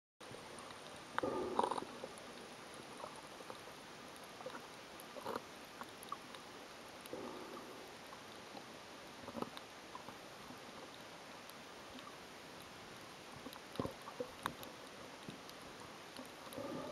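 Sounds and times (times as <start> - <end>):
underwater hiss: 1.2 - 3.2, 7.1 - 8.7.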